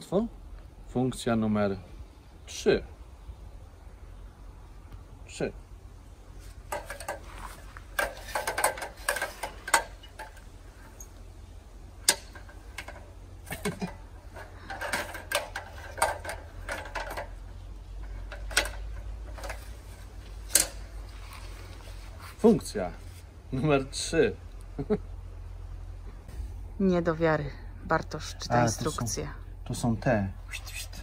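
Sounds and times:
ladder hinges clicking and rattling: 6.6 - 21.4.

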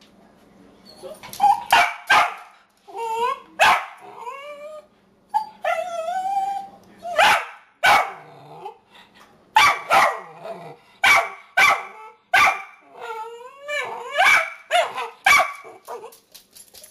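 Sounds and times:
puppy barking: 1.7 - 2.5, 3.6 - 4.0, 7.1 - 8.2, 9.6 - 10.4, 11.0 - 12.8, 14.1 - 16.1
puppy whining yowls: 2.9 - 4.8, 5.4 - 7.2, 12.9 - 14.4.

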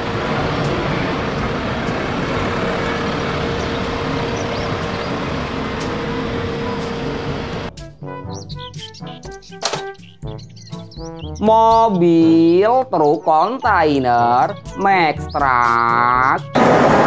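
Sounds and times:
steady whine: 0.0 - 7.7, 16.6 - 17.0
street traffic: 0.0 - 7.8
city bus engine running: 0.0 - 7.9, 16.4 - 17.0.

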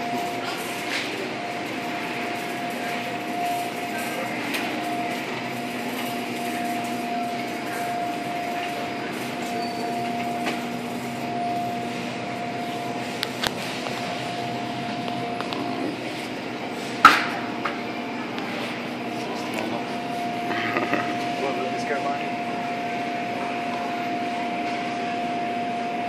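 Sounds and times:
shopping cart rolling and rattling: 0.0 - 16.3
steady hum: 0.0 - 26.0.

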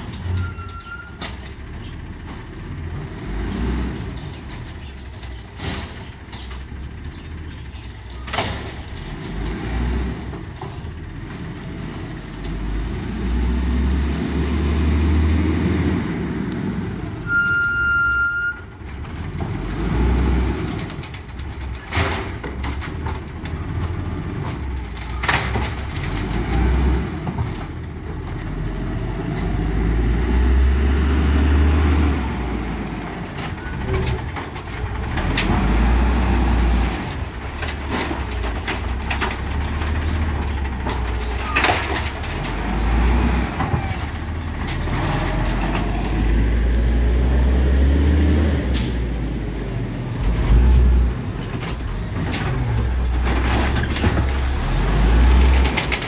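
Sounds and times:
short high squeal: 0.0 - 1.2, 17.0 - 18.6
garbage truck engine rumbling: 0.0 - 56.0.

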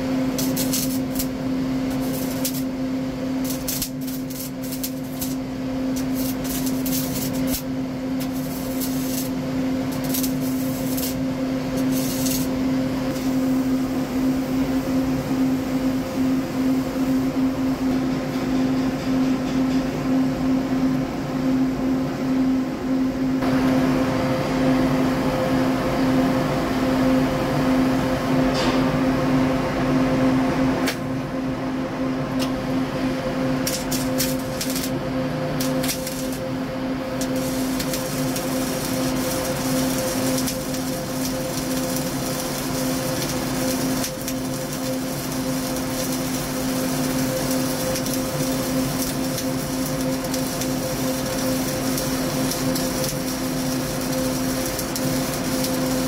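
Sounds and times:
welding arc crackling hiss: 0.0 - 15.1, 33.4 - 56.0
machine hum: 0.0 - 56.0.

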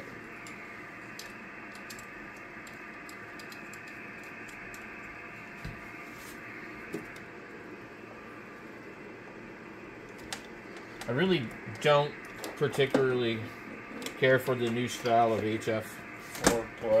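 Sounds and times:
steady hiss: 0.0 - 17.0
cables and connectors clicking: 0.3 - 5.2, 10.1 - 11.1.

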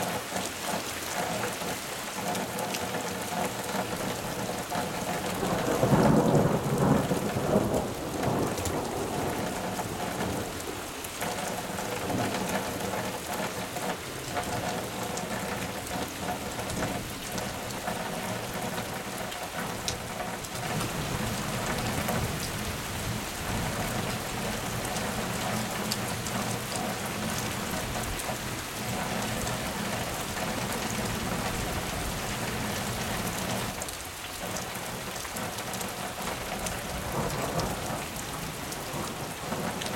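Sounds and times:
rain pattering on ground: 0.0 - 39.9
low rumble of thunder: 5.0 - 13.0, 36.5 - 39.8.

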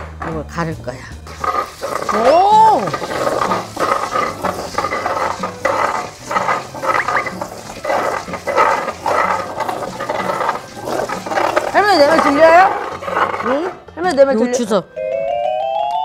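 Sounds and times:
grinding in earthenware bowl: 1.2 - 14.0.

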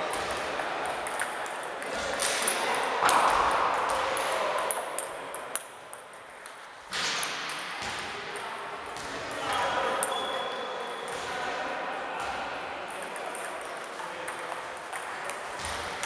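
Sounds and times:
table tennis balls clicking: 0.0 - 7.6, 12.9 - 16.0
echoing murmur of sports hall: 0.0 - 16.0.

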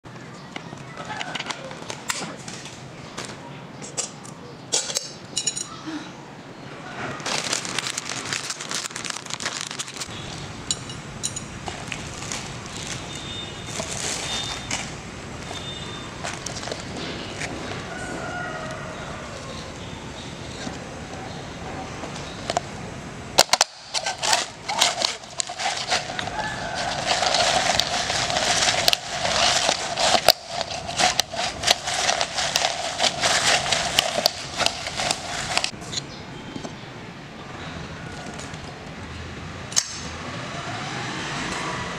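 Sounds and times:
crackling and clicking: 7.2 - 10.1, 23.4 - 35.8.

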